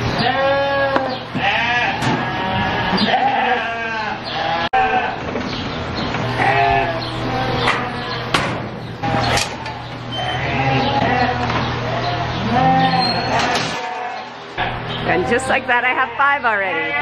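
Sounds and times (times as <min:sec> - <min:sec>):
lambs bleating: 0:00.0 - 0:05.2, 0:06.2 - 0:08.3, 0:09.0 - 0:17.0.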